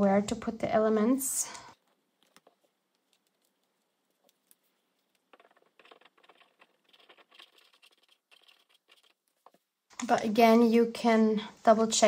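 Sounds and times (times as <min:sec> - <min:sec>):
paper rustling: 0:01.9 - 0:09.6.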